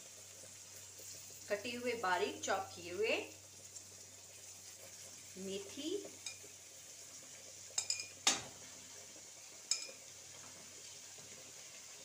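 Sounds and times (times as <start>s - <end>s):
plate clinking on metal pan rim: 7.8s - 8.4s, 9.7s - 10.0s.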